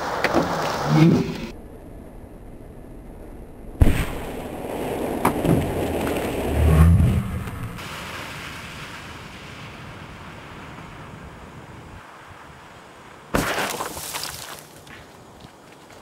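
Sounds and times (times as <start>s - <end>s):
crackles: 0.0s - 12.2s
black powder charges exploding: 3.8s - 11.0s, 13.3s - 14.3s.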